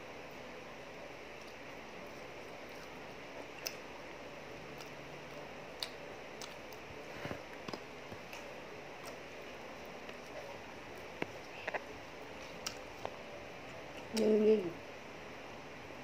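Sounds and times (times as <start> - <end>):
steady low hiss: 0.0 - 16.0
chewing clicks and smacks: 4.7 - 6.9, 11.0 - 13.2.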